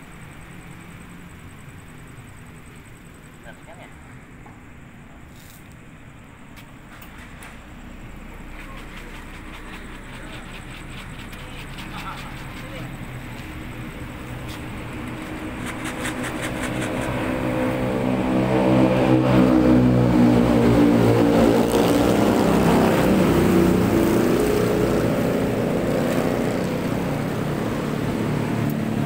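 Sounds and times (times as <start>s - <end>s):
vehicle engine passing by: 7.0s - 29.0s.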